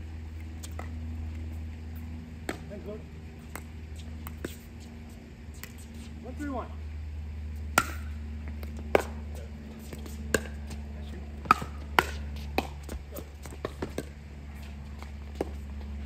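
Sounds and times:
steady low hum: 0.0 - 16.0
paddles striking ball: 2.4 - 2.9, 7.7 - 10.8, 11.4 - 14.2
light ball taps: 9.9 - 10.8, 11.4 - 14.2.

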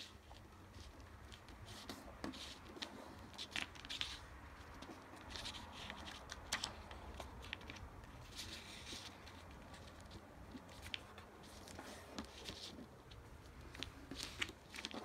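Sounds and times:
paper rustling: 0.0 - 15.0.

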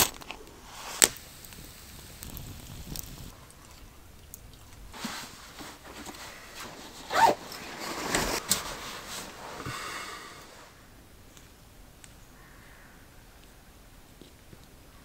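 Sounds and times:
fabric rustling: 4.9 - 10.7
zipper being pulled: 6.0 - 9.4.

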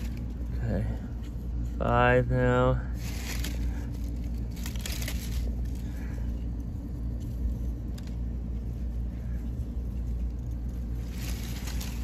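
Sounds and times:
fingers digging in loose soil: 9.8 - 12.0.

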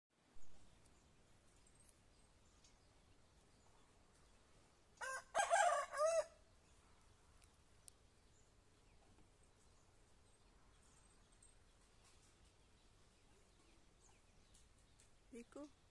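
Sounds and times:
rooster crowing: 5.0 - 6.4.

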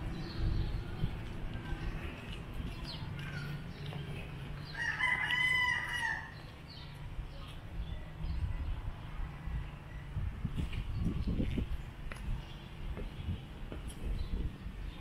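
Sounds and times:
rooster crowing: 4.7 - 6.4.

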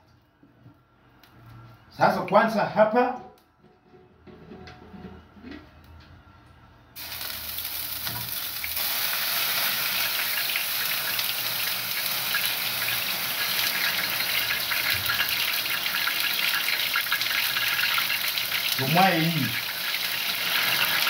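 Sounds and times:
food sizzling in a pan: 7.0 - 21.0.

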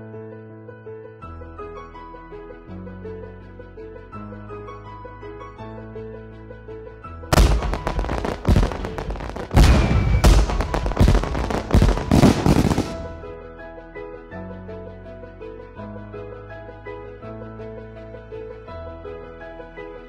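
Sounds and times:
light keyboard music: 0.0 - 20.0
firework bangs and crackling: 7.3 - 13.2.

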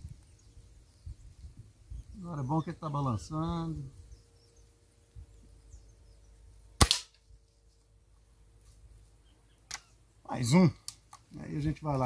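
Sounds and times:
air rifle shot: 6.8 - 7.2.

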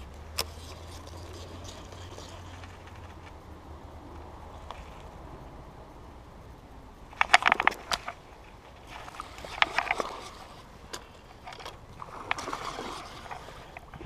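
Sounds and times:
handling noise: 7.1 - 14.0
fish thrashing and splashing: 8.8 - 14.0.

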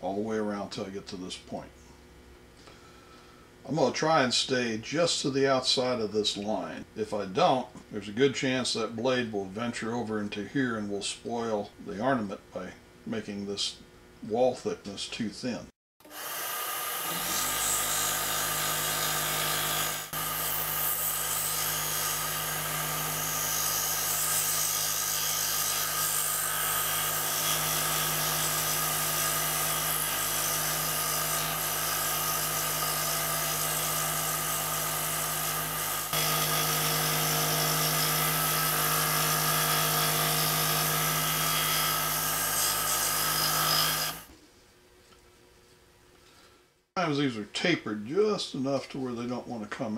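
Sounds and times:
scroll saw cutting wood: 16.0 - 44.3.

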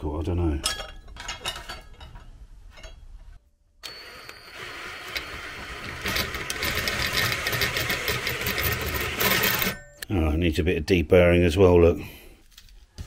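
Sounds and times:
electric drill cutting sheet metal: 3.8 - 9.8.

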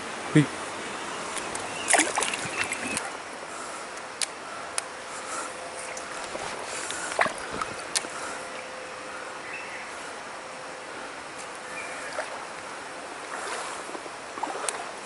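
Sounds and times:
stream water running: 0.0 - 15.0
fish splashing into water: 1.4 - 3.2.

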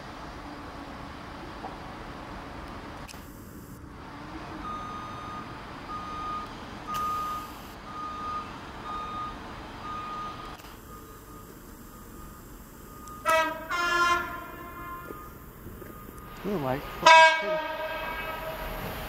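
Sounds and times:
distant diesel locomotive rumble: 0.0 - 19.0
electronic warning beeper: 4.6 - 17.1.

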